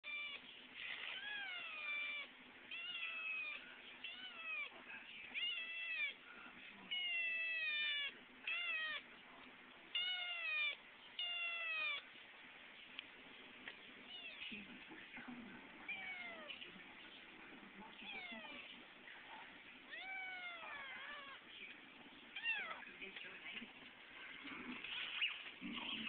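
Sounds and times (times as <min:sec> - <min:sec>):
kitten meowing: 0:00.0 - 0:00.4, 0:01.1 - 0:06.2, 0:06.9 - 0:09.0, 0:09.9 - 0:12.0, 0:15.9 - 0:16.6, 0:19.9 - 0:21.4, 0:22.4 - 0:22.8.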